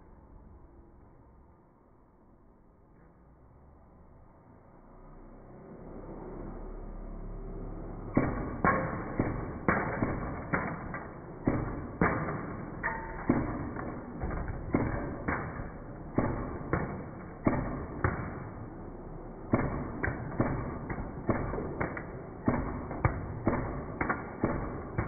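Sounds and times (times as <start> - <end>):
toy gun firing sharp cracks: 8.2 - 18.9, 19.5 - 25.0.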